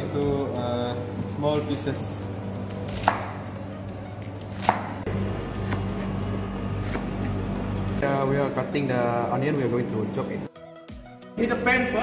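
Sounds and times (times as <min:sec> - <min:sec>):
knife chopping on plastic board: 0:04.5 - 0:04.9, 0:05.6 - 0:06.1.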